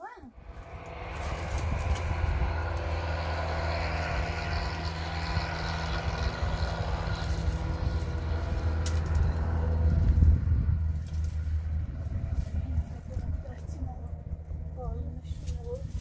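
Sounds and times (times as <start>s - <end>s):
low motor hum: 0.0s - 16.0s
firewood sticks snapping: 7.7s - 10.2s.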